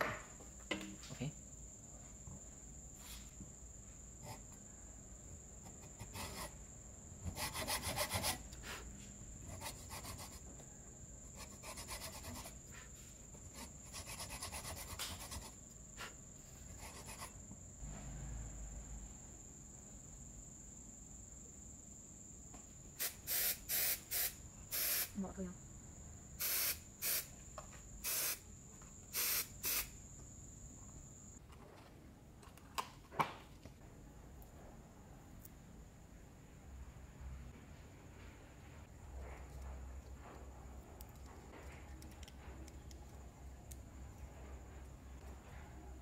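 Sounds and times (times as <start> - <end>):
short bursts of noise: 23.0 - 25.2, 26.4 - 27.4, 28.0 - 28.4, 29.1 - 30.0.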